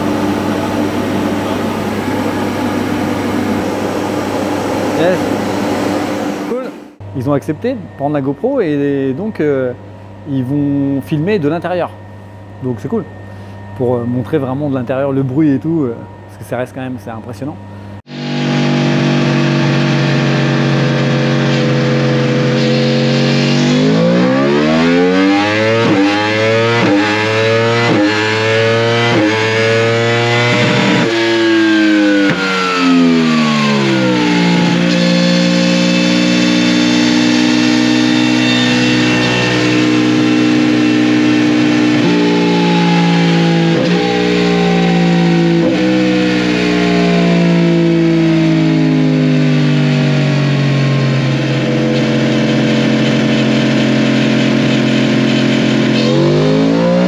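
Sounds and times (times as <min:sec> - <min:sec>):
motorcycle engine revving: 0:18.0 - 0:57.0.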